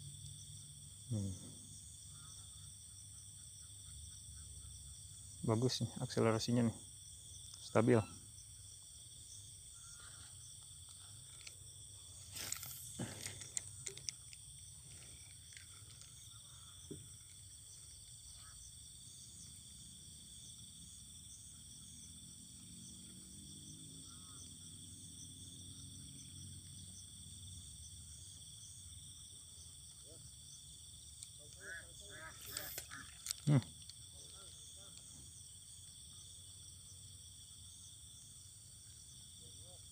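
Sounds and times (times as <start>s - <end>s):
crickets and insects chirping: 0.0s - 39.9s.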